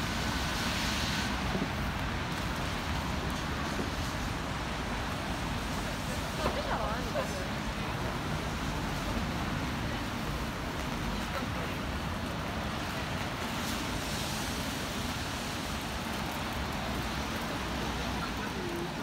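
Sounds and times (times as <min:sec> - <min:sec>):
low road traffic rumble: 0:00.0 - 0:19.0
rain hiss: 0:00.0 - 0:19.0
wet traffic hiss: 0:00.0 - 0:19.0.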